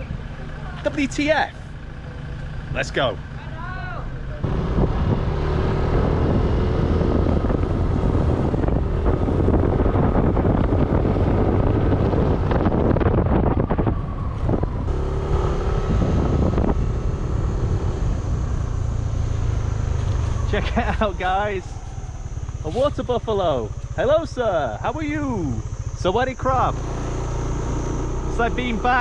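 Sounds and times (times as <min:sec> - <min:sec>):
motorbike engine running: 0:00.0 - 0:29.0
wind buffeting microphone: 0:04.4 - 0:29.0.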